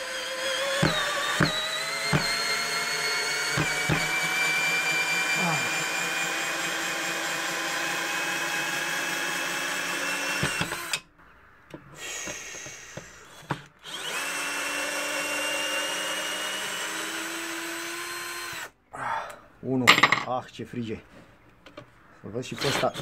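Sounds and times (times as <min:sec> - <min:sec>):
drill clicks: 0:00.0 - 0:08.0, 0:08.7 - 0:11.0, 0:12.1 - 0:18.7
cordless drill motor running: 0:00.0 - 0:11.0, 0:12.0 - 0:18.8.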